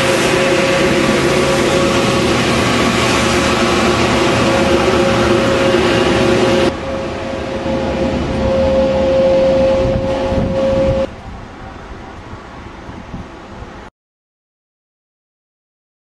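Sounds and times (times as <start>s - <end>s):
loud machine hum: 0.0s - 11.1s.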